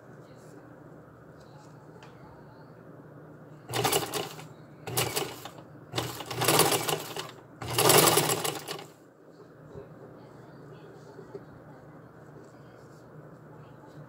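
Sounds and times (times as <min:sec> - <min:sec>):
sewing machine stitching: 0:03.7 - 0:08.9.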